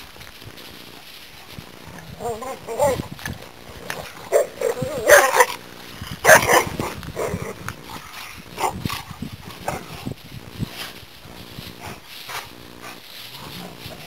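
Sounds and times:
dogs yipping and barking: 0:02.2 - 0:03.1, 0:03.9 - 0:05.6, 0:06.2 - 0:08.9.

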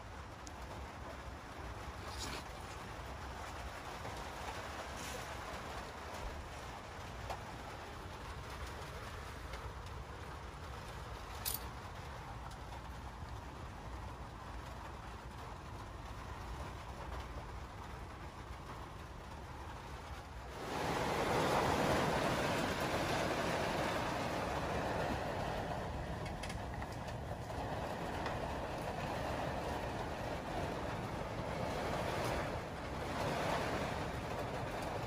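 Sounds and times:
storm rain: 0:00.0 - 0:35.0
rushing wind: 0:19.1 - 0:35.0.

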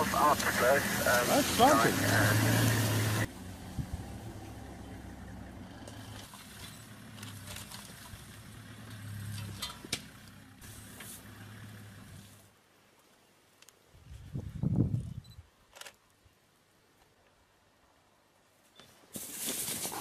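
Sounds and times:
vehicle engine idling: 0:00.0 - 0:12.5.

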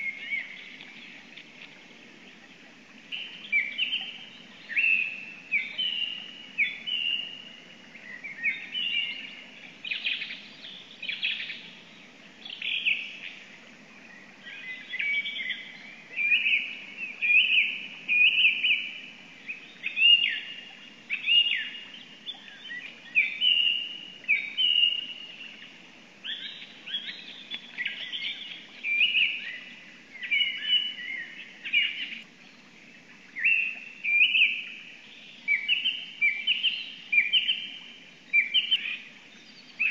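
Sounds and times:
songbirds singing: 0:00.0 - 0:39.9.

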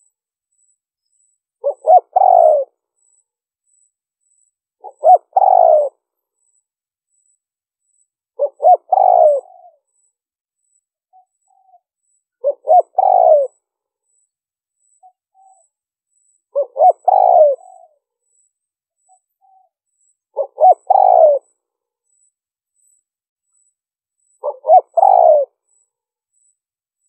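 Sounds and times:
dove cooing: 0:01.6 - 0:02.8, 0:04.8 - 0:06.0, 0:08.4 - 0:09.8, 0:12.4 - 0:13.6, 0:16.5 - 0:18.0, 0:20.3 - 0:21.5, 0:24.4 - 0:25.6.

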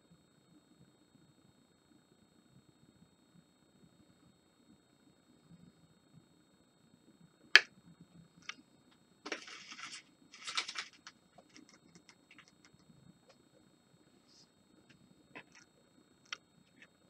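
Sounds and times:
scraping and rustling: 0:09.3 - 0:12.8.

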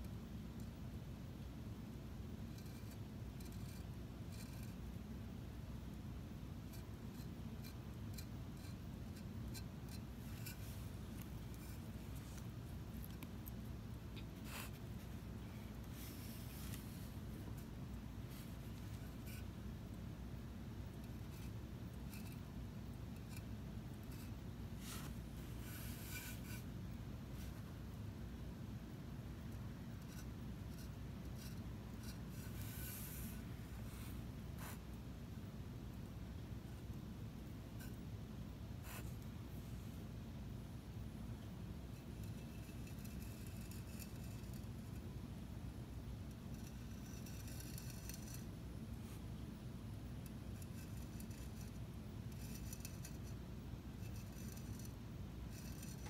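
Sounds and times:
low room hum: 0:00.0 - 0:56.0
scratchy strokes of bottle tip: 0:07.2 - 0:19.5, 0:24.0 - 0:26.7, 0:30.0 - 0:34.9.

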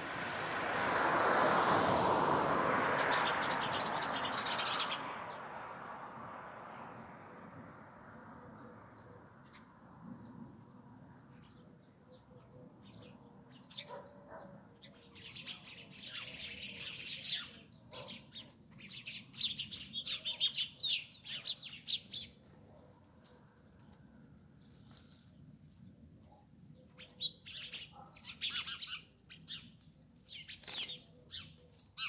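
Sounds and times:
sparrows chirping: 0:03.0 - 0:06.7, 0:11.3 - 0:22.6, 0:26.8 - 0:32.0.

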